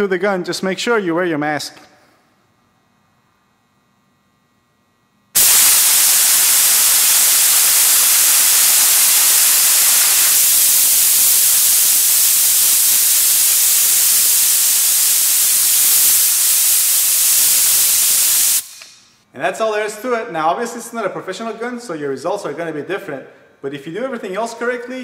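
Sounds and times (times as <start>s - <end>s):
spray gun hissing: 5.4s - 19.0s.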